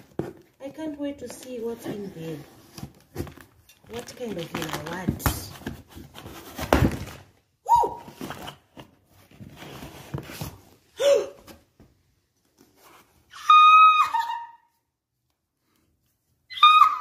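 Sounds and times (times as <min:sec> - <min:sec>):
cardboard box rustling and scraping: 0:01.5 - 0:07.2, 0:08.1 - 0:10.8
woman squealing with excitement: 0:07.6 - 0:08.1, 0:13.3 - 0:14.8, 0:16.5 - 0:17.0.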